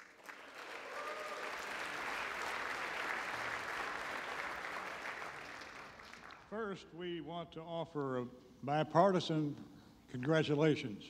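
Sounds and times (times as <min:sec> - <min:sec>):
crowd applauding: 0:00.0 - 0:06.6.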